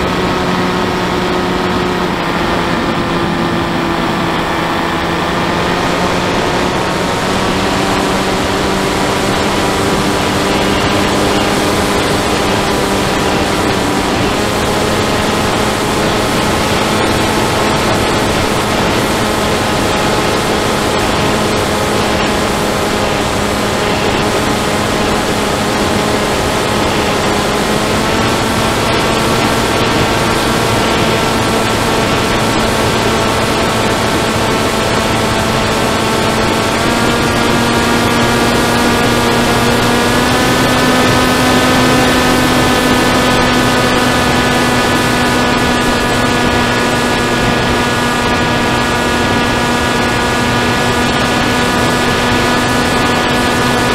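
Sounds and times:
electric motor and propeller whine: 0:00.0 - 0:53.9
rushing wind noise: 0:00.0 - 0:53.9.

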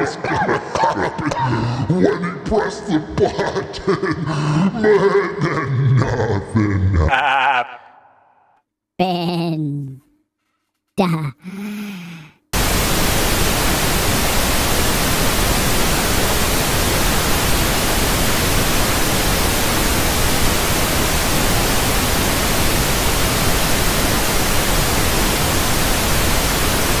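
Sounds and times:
tv static hiss: 0:12.6 - 0:27.0.

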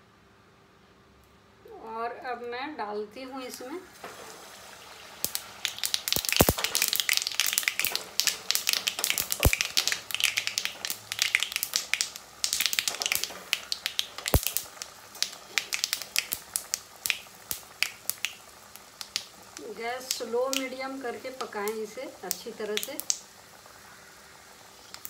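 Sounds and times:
dough deep-frying in hot oil: 0:03.4 - 0:25.0.

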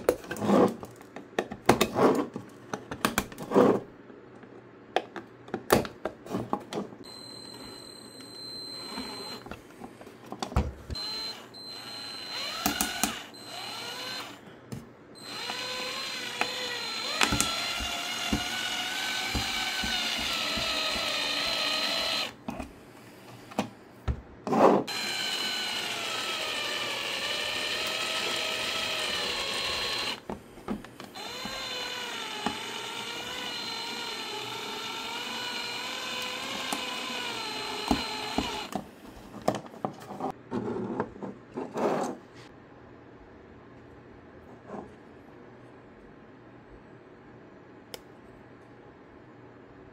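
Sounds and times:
electric screwdriver motor whining: 0:07.1 - 0:09.5, 0:10.9 - 0:14.4, 0:15.2 - 0:22.4, 0:24.9 - 0:30.2, 0:31.1 - 0:38.7.

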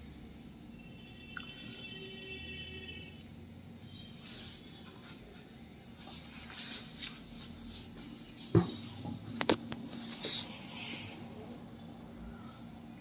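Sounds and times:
rustling of tray and papers: 0:04.2 - 0:11.1.

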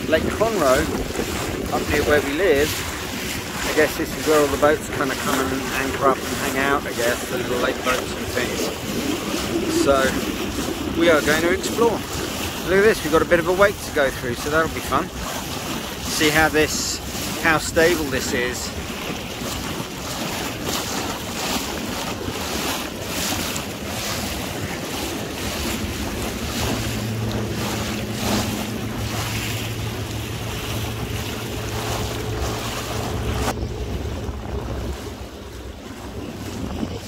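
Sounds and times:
water splashing against boat hull: 0:00.0 - 0:37.0
wind buffeting microphone: 0:00.0 - 0:37.0
steady low hum: 0:24.5 - 0:37.0.

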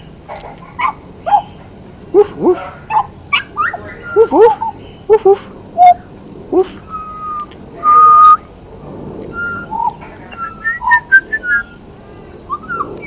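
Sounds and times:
bird singing whistled notes: 0:03.4 - 0:05.1, 0:06.9 - 0:08.5, 0:09.3 - 0:13.0.

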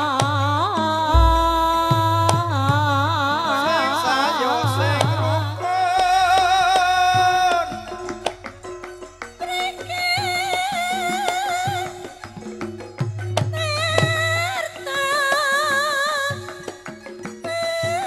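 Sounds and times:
gamelan accompaniment: 0:01.2 - 0:02.3
deep gong stroke: 0:01.2 - 0:02.6
drum: 0:01.2 - 0:02.8.

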